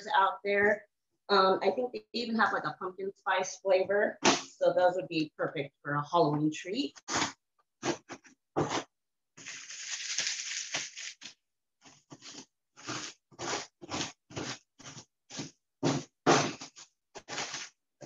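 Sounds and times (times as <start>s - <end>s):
cookies crunching under rolling pin: 7.0s - 17.8s
plastic bag crinkling: 9.4s - 11.4s, 16.6s - 17.8s.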